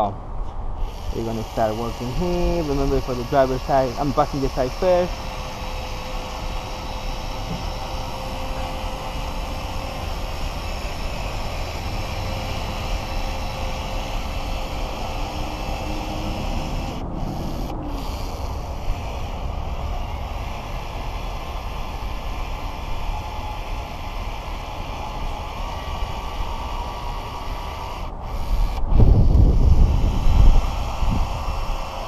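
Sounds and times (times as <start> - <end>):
wind noise on microphone: 26.1 - 32.0.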